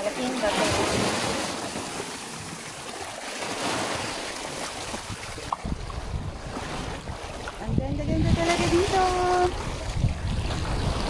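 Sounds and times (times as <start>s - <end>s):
waves washing on sandy shore: 0.0s - 11.0s
wind rumbling on microphone: 3.4s - 11.0s.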